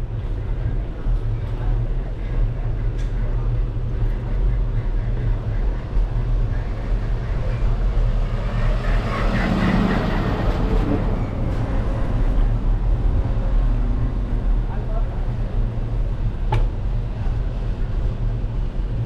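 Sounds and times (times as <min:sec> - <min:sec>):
wind and road noise: 0:00.0 - 0:19.0
truck engine passing: 0:07.4 - 0:14.8.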